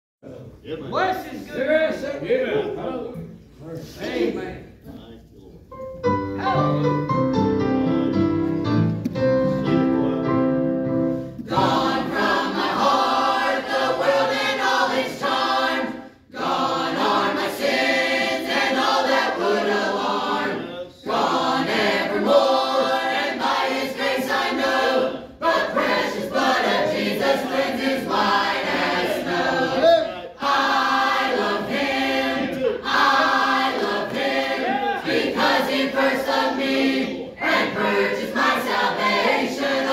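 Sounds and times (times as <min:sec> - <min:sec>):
piano: 0:05.7 - 0:13.7
choir singing a hymn: 0:09.4 - 0:39.9.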